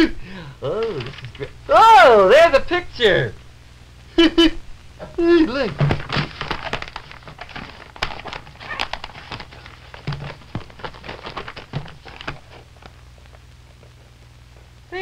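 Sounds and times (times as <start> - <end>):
magazine pages rustling: 0.8 - 1.5, 5.5 - 13.4.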